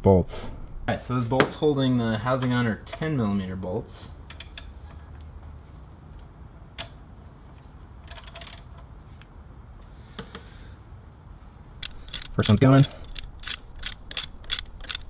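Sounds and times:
socket wrench clicking: 0:11.8 - 0:15.0.

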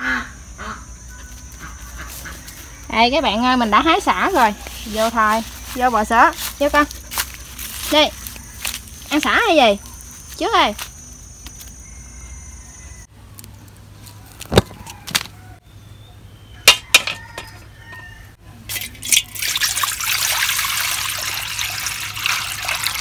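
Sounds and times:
metal wok knocking: 0:16.7 - 0:17.6
water poured into wok: 0:18.7 - 0:23.0.

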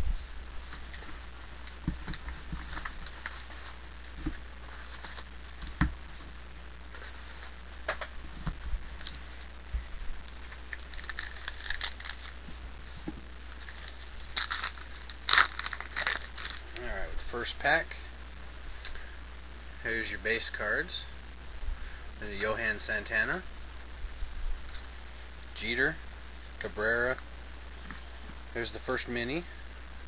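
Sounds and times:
wrapper rustling: 0:00.0 - 0:06.3, 0:08.6 - 0:17.2
wrapper tearing open: 0:10.5 - 0:12.4, 0:13.5 - 0:16.7.

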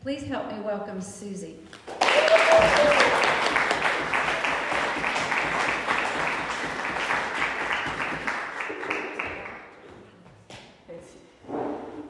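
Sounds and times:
audience applauding: 0:01.8 - 0:09.8.

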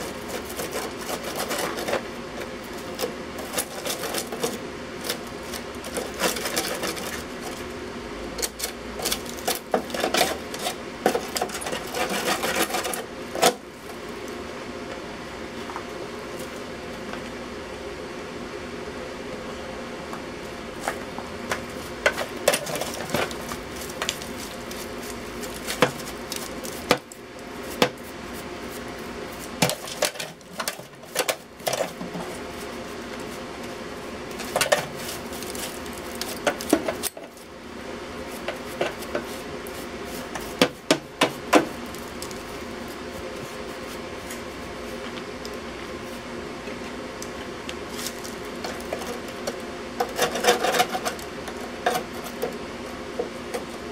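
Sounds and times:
steady background hum: 0:00.0 - 0:53.9.

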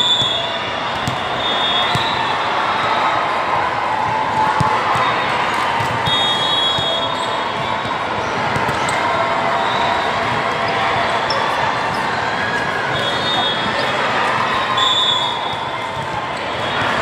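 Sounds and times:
crowd chatter: 0:00.0 - 0:17.0
volleyball thumps: 0:00.2 - 0:01.3.

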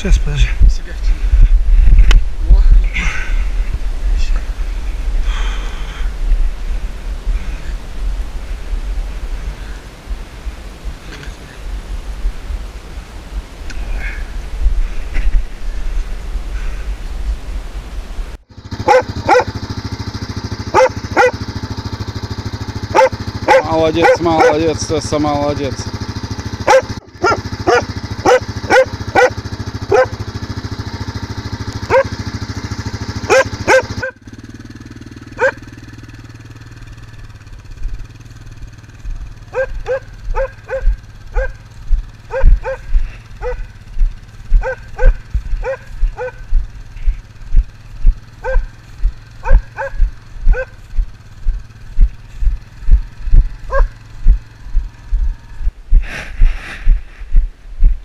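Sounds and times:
quad bike engine: 0:00.0 - 0:58.0
dogs barking: 0:18.7 - 0:25.0, 0:26.5 - 0:31.1, 0:31.7 - 0:34.2, 0:35.3 - 0:35.7, 0:39.4 - 0:43.8, 0:44.4 - 0:46.5, 0:48.4 - 0:50.9, 0:53.6 - 0:54.0.

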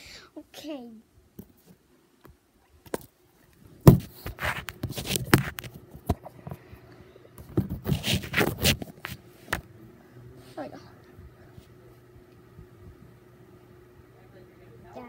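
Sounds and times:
handling noise scraping and rustling: 0:03.7 - 0:06.7, 0:07.4 - 0:09.6.

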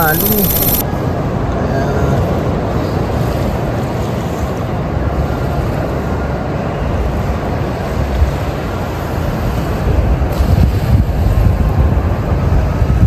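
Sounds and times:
wind on microphone: 0:08.2 - 0:13.0.

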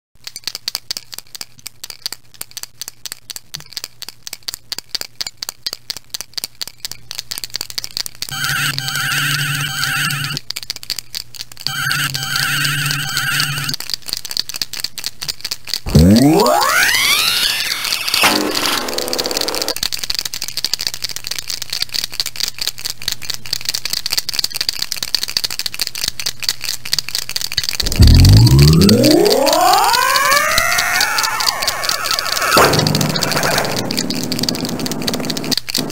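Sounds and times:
paint marker ball rattling: 0:00.2 - 0:08.3, 0:13.6 - 0:35.9
warbling electronic raygun tone: 0:08.3 - 0:10.4, 0:11.7 - 0:13.8, 0:15.9 - 0:19.8, 0:27.8 - 0:35.9
raygun sound effect: 0:27.8 - 0:34.7.

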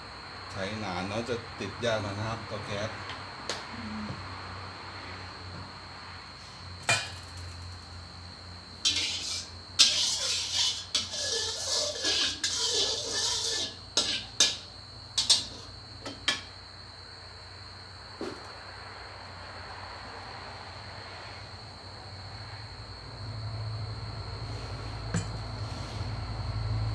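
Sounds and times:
metal spatula scraping a wok: 0:08.8 - 0:15.7.

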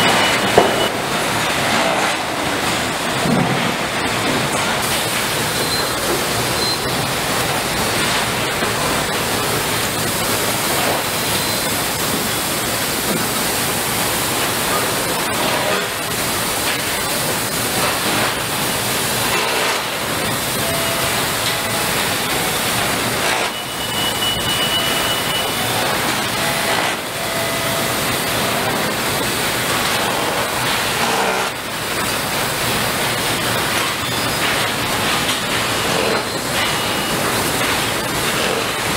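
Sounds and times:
factory machinery roar: 0:00.0 - 0:38.9
brief high tone: 0:23.4 - 0:28.5.

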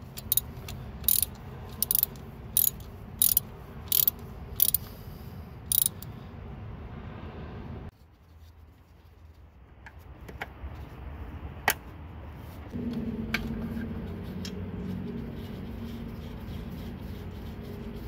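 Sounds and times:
hand tools and metal parts clicking: 0:00.0 - 0:05.0, 0:05.7 - 0:06.1
low hum with held tones: 0:12.8 - 0:18.0.

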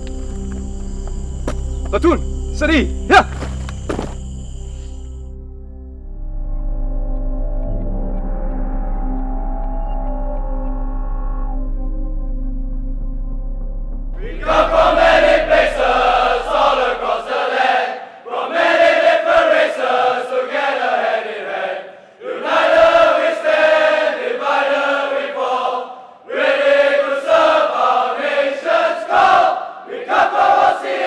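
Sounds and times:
men chanting a marching song: 0:14.2 - 0:31.0.

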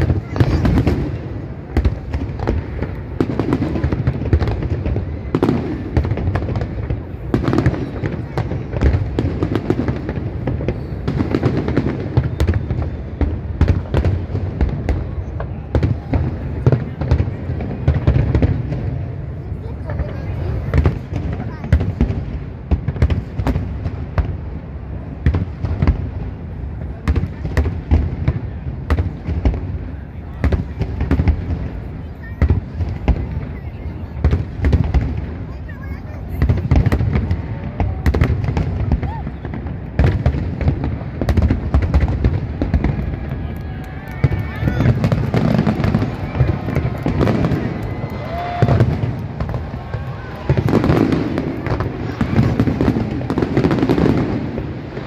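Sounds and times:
fireworks bursting with sharp bangs: 0:00.0 - 0:55.0.

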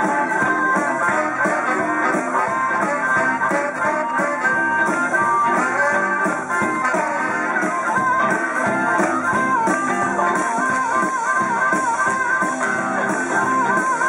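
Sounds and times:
amplified harmonica wavering notes: 0:00.0 - 0:14.0
electric guitar: 0:00.0 - 0:14.0.

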